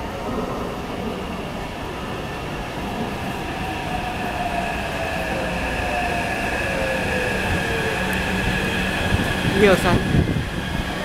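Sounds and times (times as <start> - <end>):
train rumble: 0.0 - 11.0.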